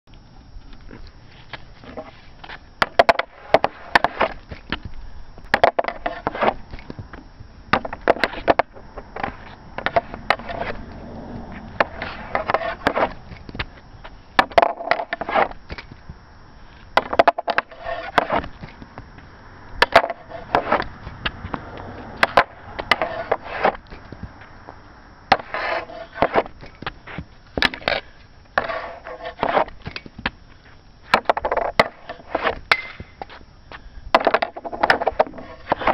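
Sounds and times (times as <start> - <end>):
hockey stick striking pucks: 2.8 - 4.4, 5.5 - 6.6, 7.7 - 10.8, 11.8 - 13.2, 14.4 - 15.9, 17.0 - 18.8, 19.8 - 21.6, 22.2 - 23.8, 25.3 - 27.0, 28.6 - 30.4, 31.1 - 33.2, 34.2 - 35.9.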